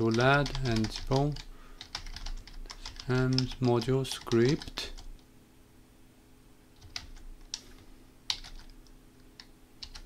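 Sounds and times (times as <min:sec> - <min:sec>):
computer keyboard keystrokes: 0:00.0 - 0:05.2, 0:06.8 - 0:07.7, 0:08.3 - 0:08.8, 0:09.4 - 0:10.0
faint steady hum: 0:00.0 - 0:10.0.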